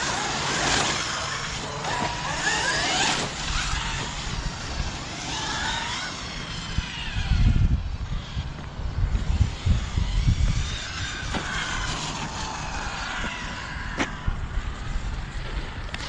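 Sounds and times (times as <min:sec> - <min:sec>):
rc truck electric motors whining: 0:00.0 - 0:16.0
gusty low rumble: 0:03.3 - 0:16.0.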